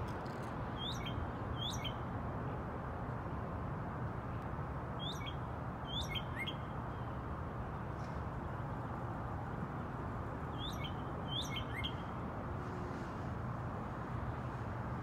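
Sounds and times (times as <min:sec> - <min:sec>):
bird singing whistles: 0:00.8 - 0:02.0, 0:05.0 - 0:06.6, 0:10.6 - 0:12.0.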